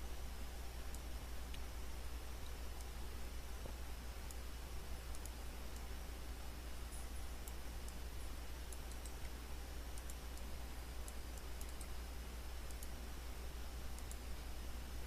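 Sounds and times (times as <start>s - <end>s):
low hum and hiss: 0.0s - 15.0s
computer mouse clicks: 5.0s - 5.9s, 6.9s - 8.0s, 8.6s - 12.0s, 12.6s - 13.0s, 13.9s - 14.3s.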